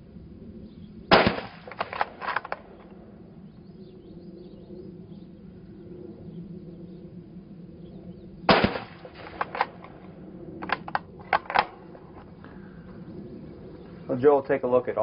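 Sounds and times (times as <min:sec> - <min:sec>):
rifle shot with echo: 0:01.1 - 0:02.9, 0:08.5 - 0:10.0.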